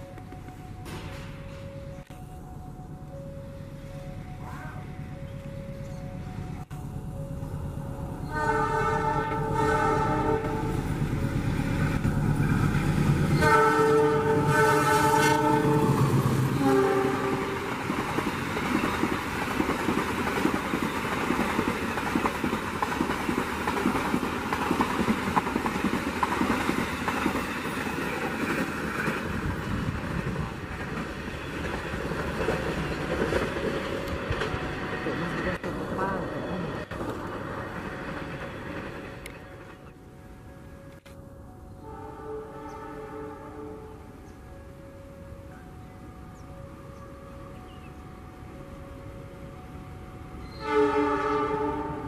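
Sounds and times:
train coaches rumbling over rails: 0.0s - 41.0s
locomotive horn chord: 8.2s - 10.9s, 13.3s - 17.9s, 41.8s - 44.3s, 49.8s - 52.0s.

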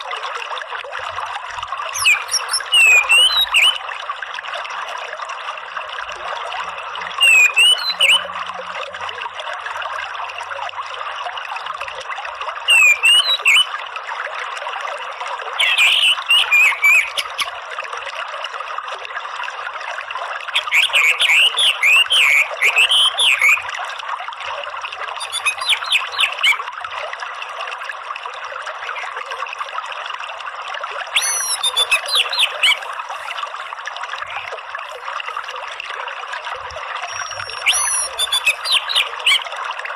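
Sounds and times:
running water: 0.0s - 39.9s.

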